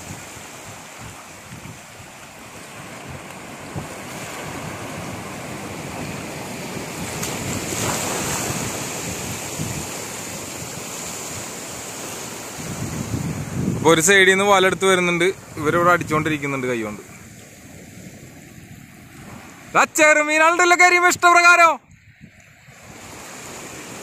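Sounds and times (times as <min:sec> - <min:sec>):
wind buffeting microphone: 0:00.0 - 0:19.8, 0:21.8 - 0:24.0
sea waves washing: 0:00.0 - 0:24.0.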